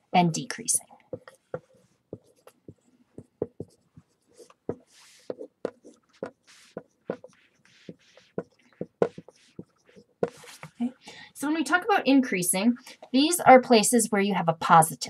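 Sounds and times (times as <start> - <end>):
marker strokes hissing: 1.1 - 10.8
marker tapping on whiteboard: 1.1 - 10.8.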